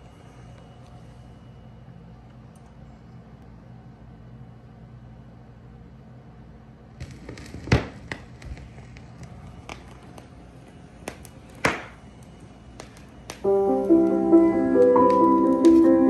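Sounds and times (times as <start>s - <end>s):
faint low hum: 0.0s - 16.0s
vinyl clicks and pops: 7.0s - 10.3s.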